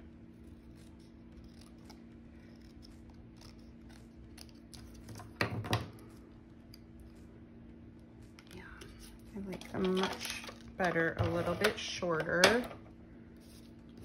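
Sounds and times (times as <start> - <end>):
scissors snipping paper: 0.5 - 5.1.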